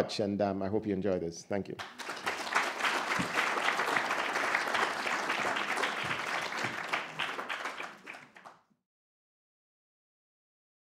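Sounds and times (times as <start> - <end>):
audience applauding: 1.8 - 8.6.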